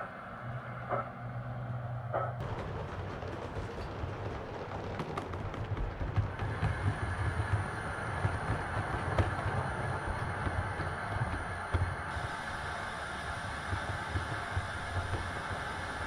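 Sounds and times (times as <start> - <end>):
model train rolling on track: 2.4 - 16.0.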